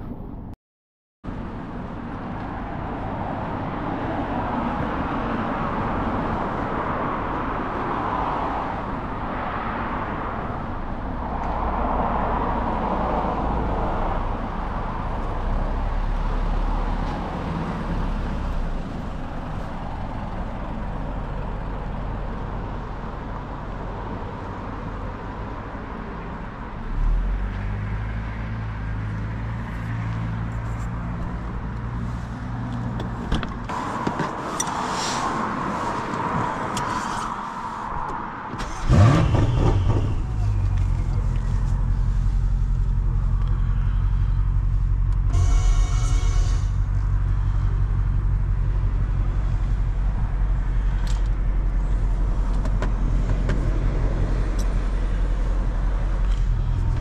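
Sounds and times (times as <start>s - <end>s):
tyre and road noise: 1.2s - 57.0s
car engine running: 38.6s - 57.0s.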